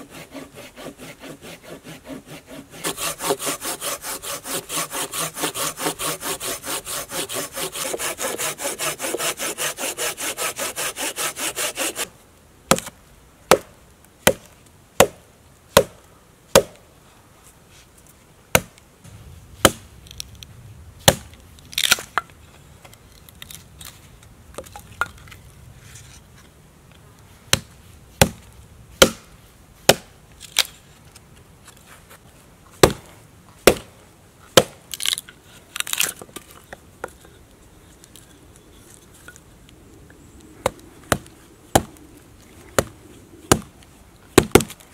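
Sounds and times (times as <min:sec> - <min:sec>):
hand saw cutting branch: 0:00.0 - 0:12.1
hatchet chopping wood: 0:12.7 - 0:15.2, 0:15.8 - 0:16.8, 0:18.5 - 0:18.8, 0:19.6 - 0:19.8, 0:21.0 - 0:22.1, 0:27.5 - 0:29.3, 0:29.9 - 0:30.1, 0:32.8 - 0:33.9, 0:34.6 - 0:35.2, 0:40.6 - 0:41.9, 0:43.5 - 0:43.7, 0:44.4 - 0:44.8.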